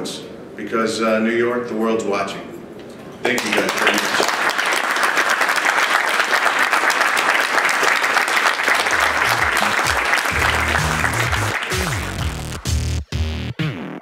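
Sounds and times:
audience applauding: 3.4 - 12.9
electronic music with deep bass: 8.9 - 14.0.

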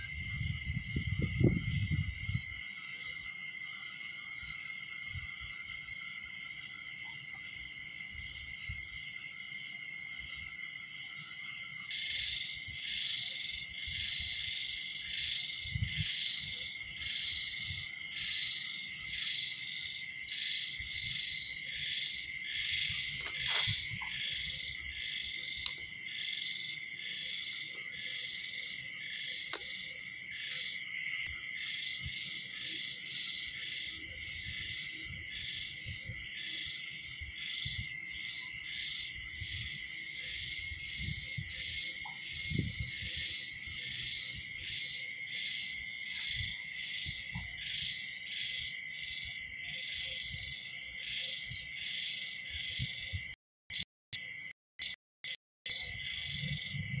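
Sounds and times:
insects trilling: 0.0 - 57.0
pulsing insect call: 0.0 - 57.0.

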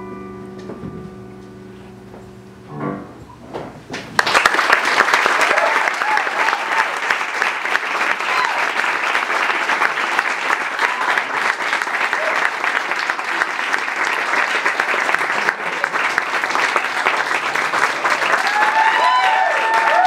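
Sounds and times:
audience applauding: 4.2 - 20.0.

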